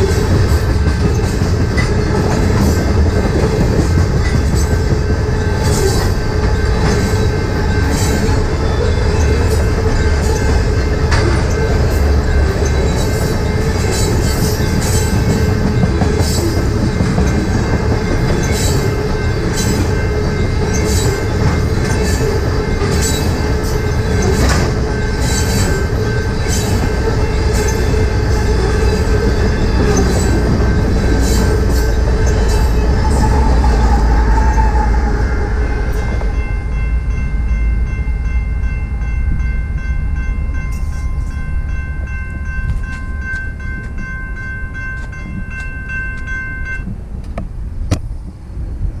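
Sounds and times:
train wheels clicking over rail joints: 0:00.0 - 0:34.8
crossing warning bell ringing: 0:00.0 - 0:47.1
freight train rumbling past: 0:00.0 - 0:49.0.

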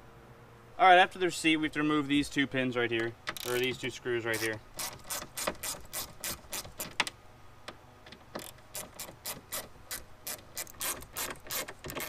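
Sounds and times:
hand ratchet clicking: 0:03.3 - 0:07.2, 0:08.1 - 0:12.0.

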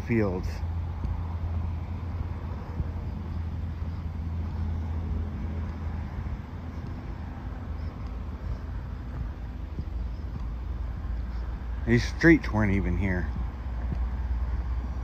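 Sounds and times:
low rumble of road traffic: 0:00.0 - 0:15.0.

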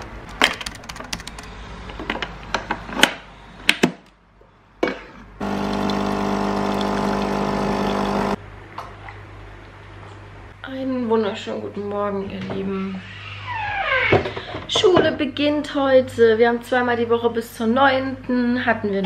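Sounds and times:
coffee machine pump buzzing: 0:05.4 - 0:08.4.

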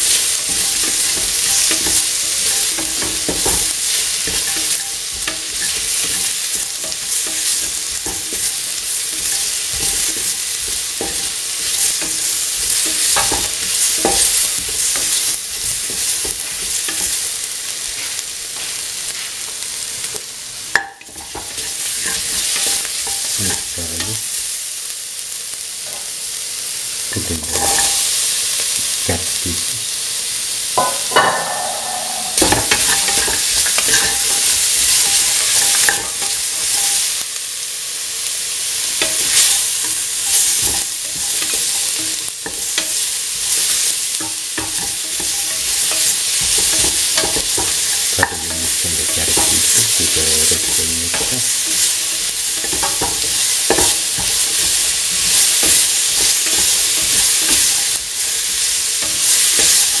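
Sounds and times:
vegetables sizzling in hot oil: 0:00.0 - 1:00.0
spoon scraping metal pan: 0:30.8 - 0:34.3.

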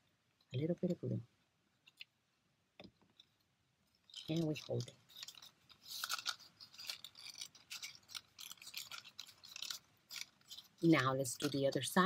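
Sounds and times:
paper rustling and crinkling: 0:03.1 - 0:12.0.

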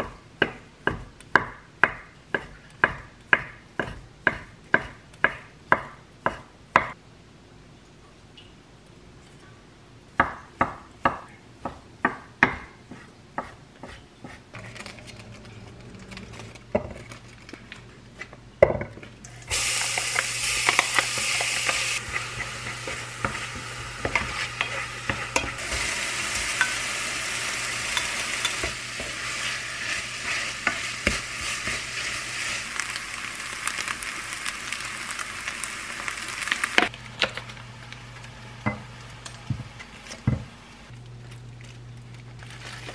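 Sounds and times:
onion sizzling in frying pan: 0:19.3 - 0:40.1
utensil scraping pan: 0:19.6 - 0:32.6.

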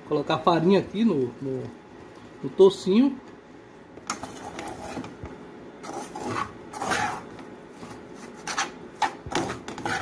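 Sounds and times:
metal spoon scraping frying pan: 0:08.4 - 0:10.0.

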